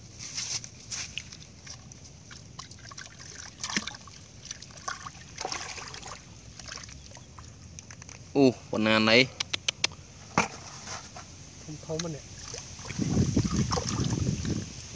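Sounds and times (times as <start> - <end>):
hands splashing in muddy water: 1.0 - 7.5, 12.4 - 14.7.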